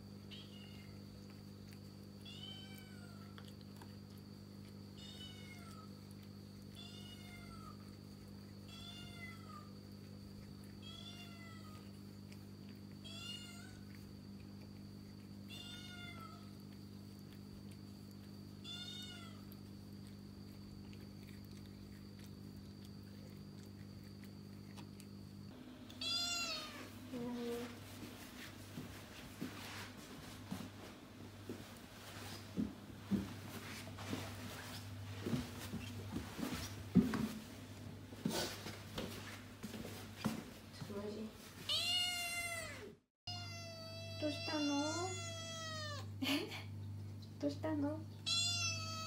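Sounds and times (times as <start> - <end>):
kitten meowing: 18.6 - 19.4, 26.0 - 26.9, 41.7 - 46.1, 48.3 - 49.0.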